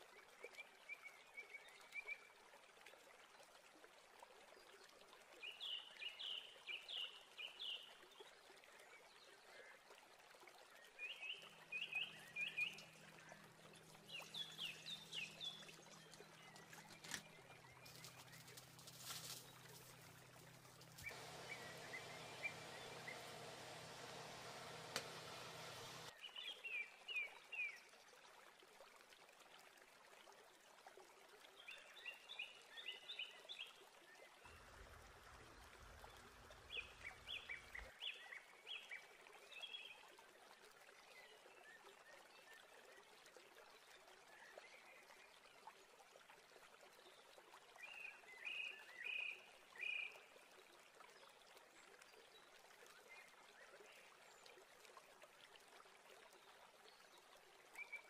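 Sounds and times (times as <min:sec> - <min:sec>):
low hum: 0:18.5 - 0:26.1
low hiss: 0:18.8 - 0:26.1.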